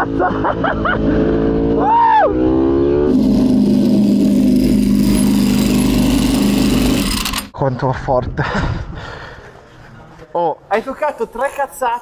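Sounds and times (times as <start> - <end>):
motorcycle engine accelerating: 0.0 - 7.5.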